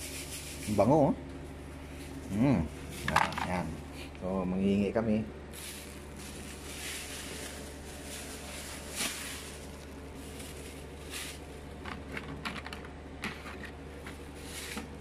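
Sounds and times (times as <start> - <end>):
low hum: 0.0 - 15.0
hand rummaging through dried fish: 5.6 - 11.8.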